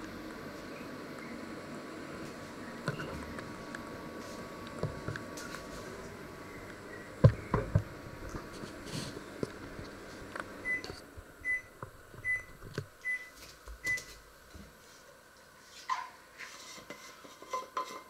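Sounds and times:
microwave oven beeping: 0:00.0 - 0:08.3, 0:09.9 - 0:14.2.

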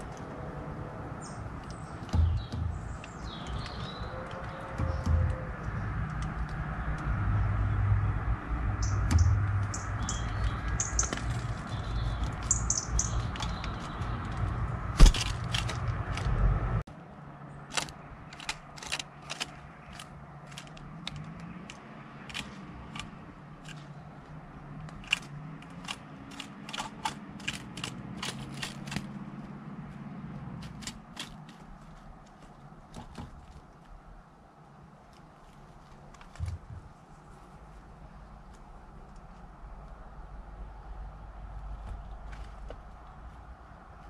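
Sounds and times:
high bird chirps: 0:01.2 - 0:05.9, 0:08.6 - 0:14.4
sharp taps and clicks: 0:01.6 - 0:07.1, 0:08.8 - 0:16.3.

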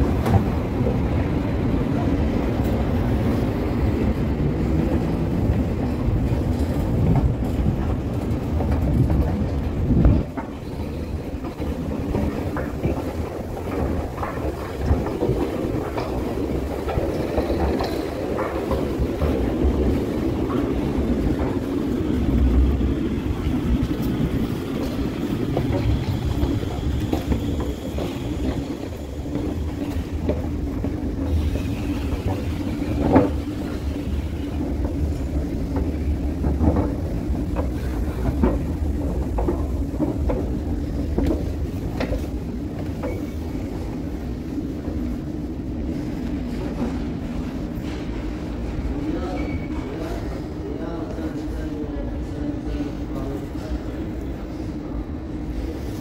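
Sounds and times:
scattered clicks and knocks: 0:06.3 - 0:43.4.

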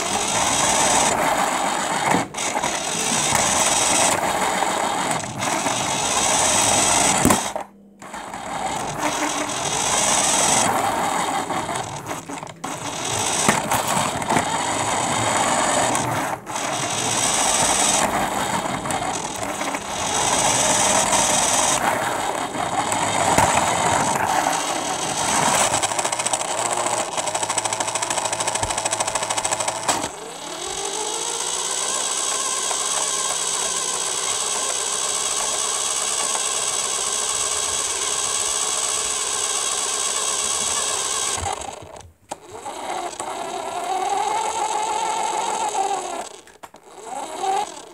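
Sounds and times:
rc car motor whir: 0:00.0 - 0:47.9.

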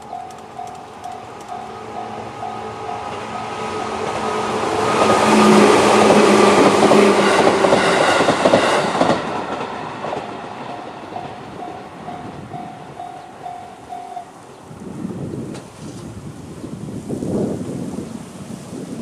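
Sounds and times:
level crossing warning bell: 0:00.0 - 0:04.8, 0:10.6 - 0:14.5
train wheels clattering: 0:00.0 - 0:14.2.

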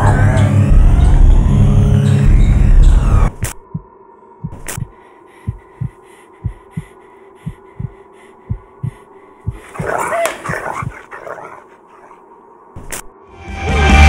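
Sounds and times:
heartbeat thumps: 0:02.3 - 0:11.1.

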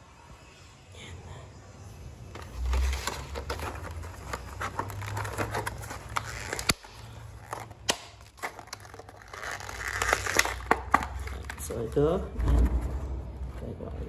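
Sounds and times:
plastic blister pack crackling: 0:02.4 - 0:12.2.

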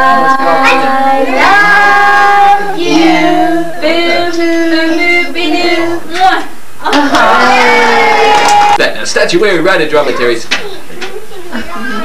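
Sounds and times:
child singing: 0:00.0 - 0:06.4.

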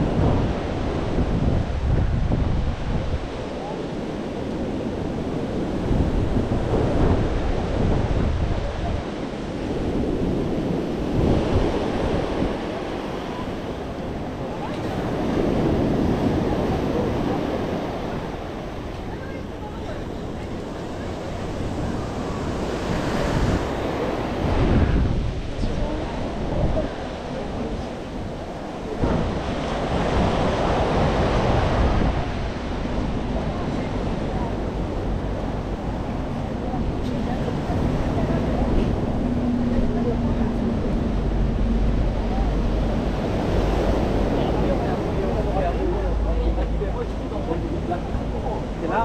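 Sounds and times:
sea waves washing onto beach: 0:00.0 - 0:49.0
wind buffeting microphone: 0:00.0 - 0:49.0.

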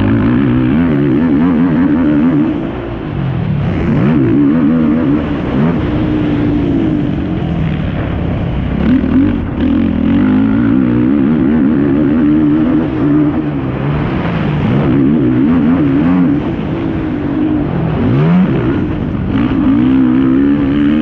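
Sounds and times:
quad engine revving: 0:00.0 - 0:21.0.

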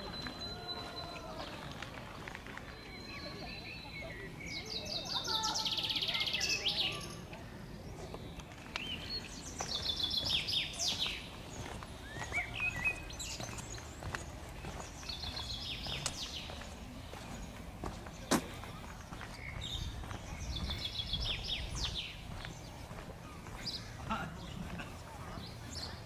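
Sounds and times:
songbirds singing: 0:00.0 - 0:26.0
footsteps on stone steps: 0:08.0 - 0:26.0.

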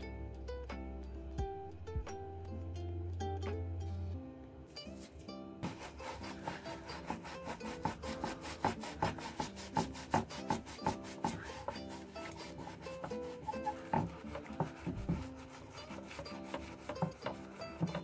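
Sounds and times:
brush scrubbing metal blade in liquid: 0:05.6 - 0:18.0.

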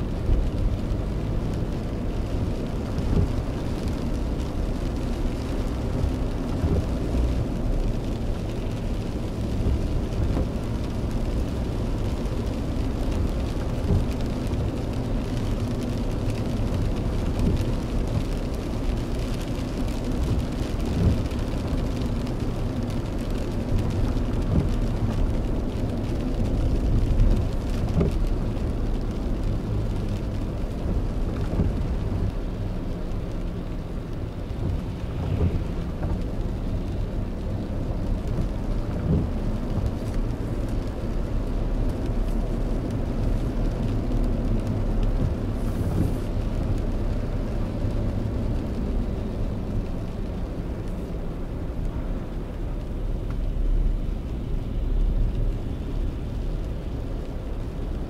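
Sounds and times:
car engine rumble: 0:00.0 - 0:58.0
rain ticking on windshield: 0:00.0 - 0:58.0
tyres on wet road: 0:00.0 - 0:58.0.

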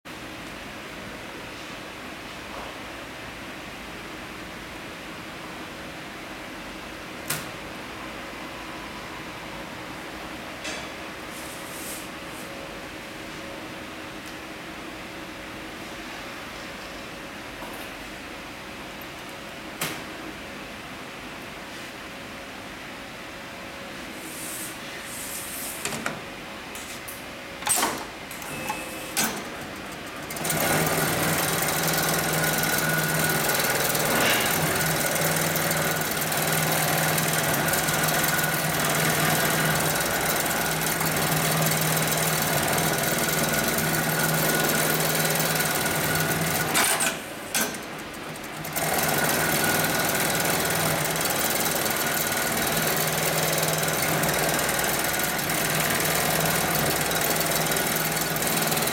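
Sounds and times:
sewing machine stitching: 0:27.7 - 0:58.9.

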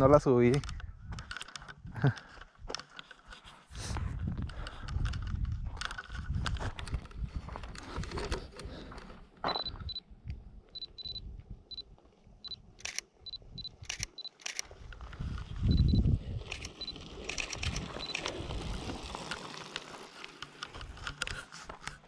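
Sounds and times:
wind rumble on microphone: 0:03.8 - 0:08.9, 0:14.8 - 0:19.2
camera short high beeps: 0:10.8 - 0:11.8, 0:15.7 - 0:18.3
camera shutter clicks: 0:12.8 - 0:14.8, 0:16.5 - 0:18.4
bicycle tyres rolling on gravel: 0:14.7 - 0:22.0.

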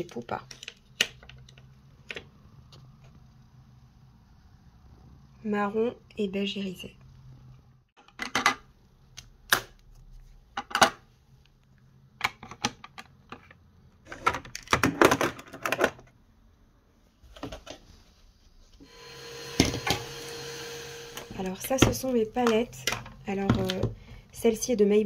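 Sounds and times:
makeup compacts clicking and clattering: 0:12.2 - 0:16.1.

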